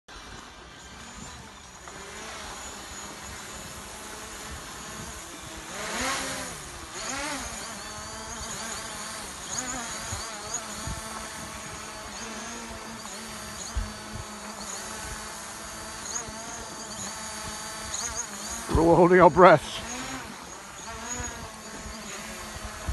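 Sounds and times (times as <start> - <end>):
drone propellers buzzing: 0.1 - 22.9.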